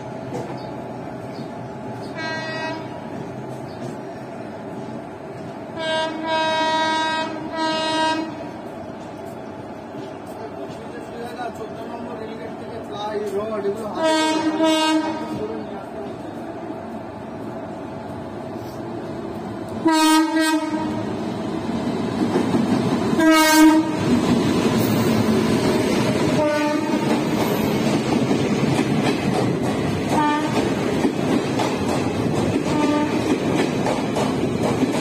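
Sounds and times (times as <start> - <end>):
locomotive horn blasts: 2.2 - 3.0, 5.8 - 8.4, 14.0 - 15.4, 19.8 - 21.0, 23.2 - 24.0, 26.4 - 27.1, 30.2 - 30.6, 32.7 - 33.2.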